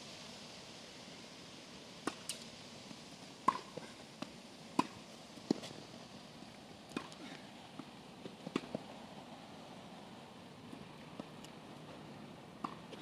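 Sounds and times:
tennis ball knocks: 3.4 - 3.8, 4.8 - 5.7.

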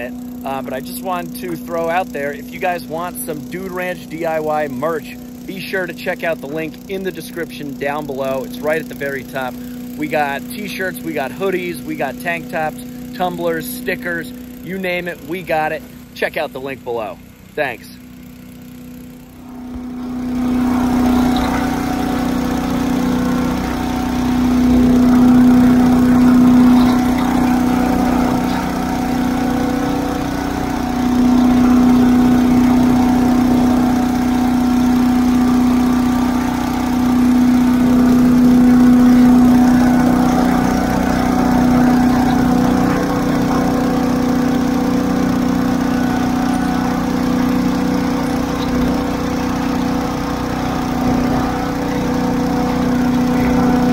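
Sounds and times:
leaf blower running: 0.0 - 53.9.

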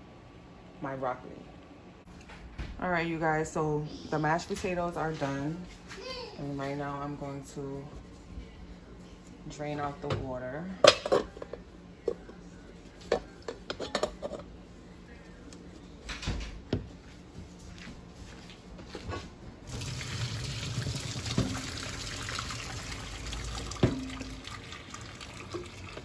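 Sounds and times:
water pouring into a steel sink: 19.7 - 26.0.

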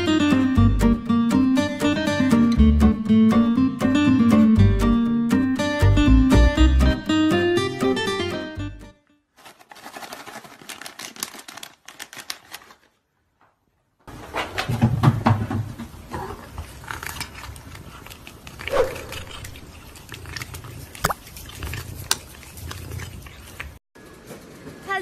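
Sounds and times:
kitten eating: 16.0 - 23.8.

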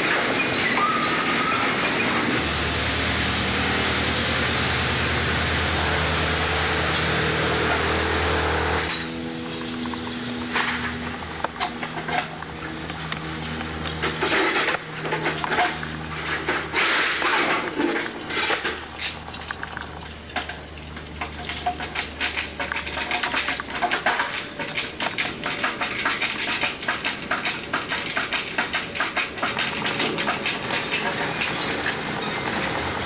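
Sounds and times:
hand tools working: 7.6 - 33.0.

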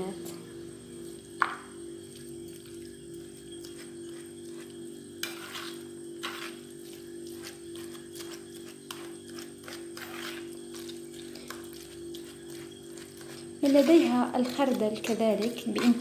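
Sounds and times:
steady low hum: 0.0 - 16.0
fork scraping in plastic bowl: 5.2 - 16.0.

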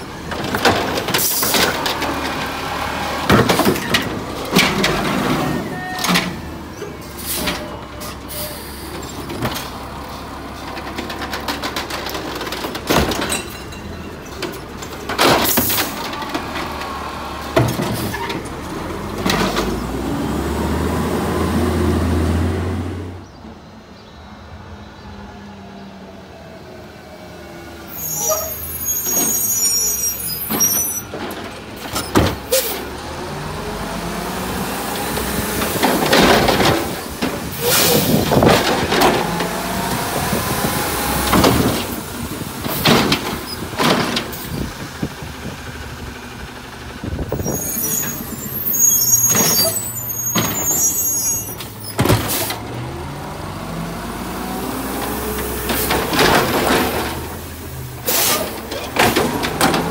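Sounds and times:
knocks and bangs from cart: 0.2 - 2.5, 3.2 - 6.4, 10.7 - 16.7, 17.5 - 18.6, 35.4 - 39.6, 41.2 - 45.1, 51.6 - 52.7, 55.6 - 57.4, 58.0 - 59.9
air brakes hissing: 7.1 - 9.2, 32.5 - 32.9, 58.0 - 58.7
truck engine revving: 15.2 - 23.2, 26.9 - 59.9.

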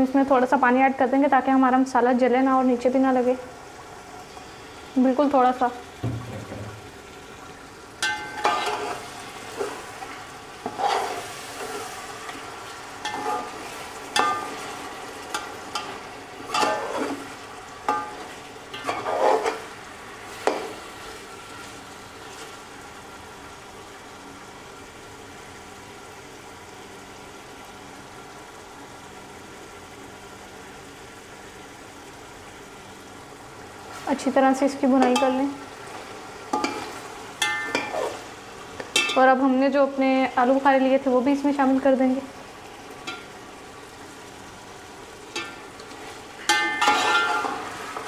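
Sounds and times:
steady frying sizzle: 0.0 - 48.0
ladle stirring and scraping pot: 8.0 - 12.4, 13.0 - 19.7, 35.9 - 39.2, 45.3 - 48.0
ladle clinking against pot: 46.5 - 47.5.

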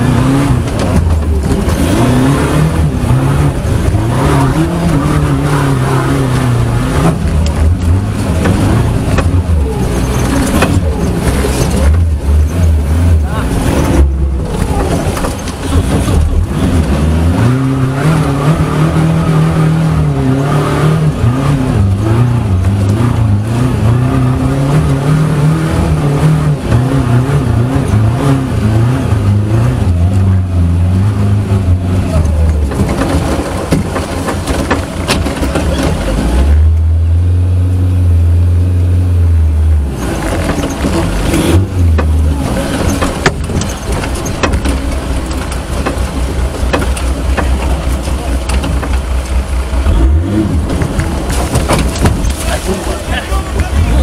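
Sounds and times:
off-road vehicle engine revving: 0.0 - 54.0.

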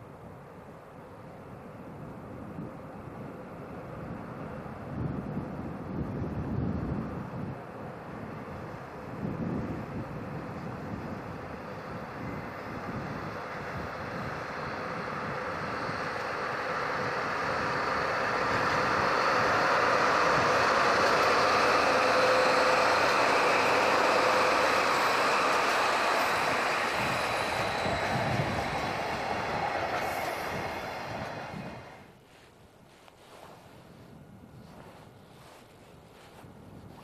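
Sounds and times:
diesel locomotive engines: 0.0 - 37.0
freight wagons rolling past: 11.0 - 32.1.

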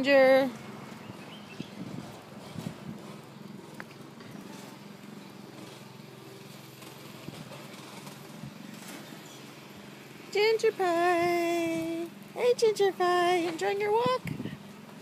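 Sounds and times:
low outdoor hum: 0.0 - 15.0.

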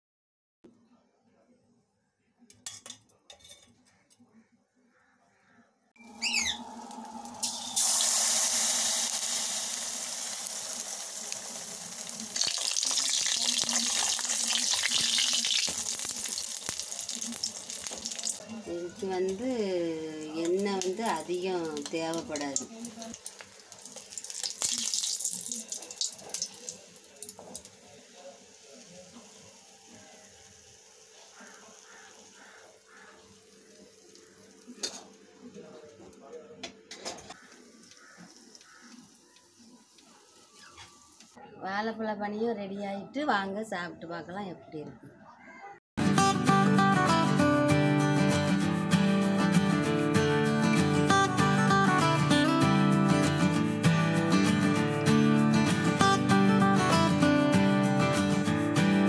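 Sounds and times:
batter sizzling in hot oil: 6.1 - 18.4, 20.2 - 35.2, 37.4 - 41.2.

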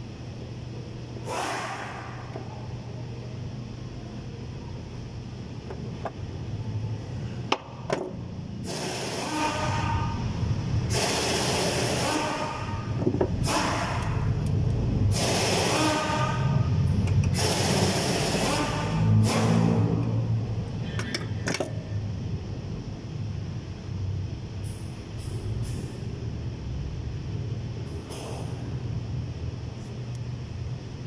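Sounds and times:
low steady hum: 0.0 - 10.9.

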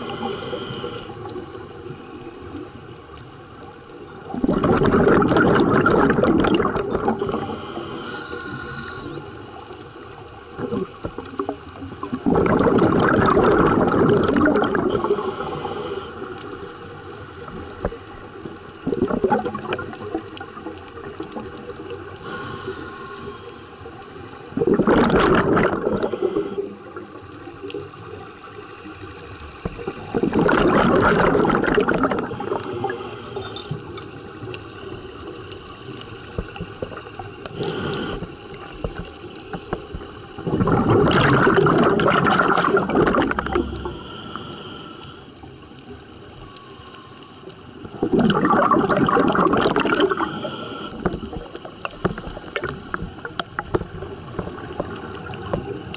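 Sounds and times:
underwater breath bubbling: 0.0 - 2.0, 4.2 - 27.3, 29.6 - 55.9
regulator hiss: 7.3 - 9.7, 22.1 - 24.3, 43.5 - 47.8, 50.0 - 53.2.

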